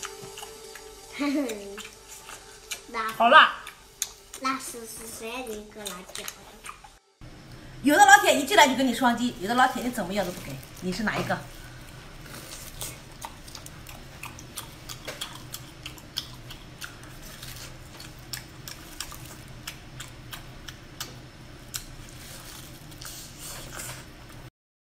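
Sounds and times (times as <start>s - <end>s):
wet mouth eating sounds: 0.0s - 4.8s, 5.4s - 7.0s, 11.4s - 24.5s
low steady hum: 0.0s - 24.5s.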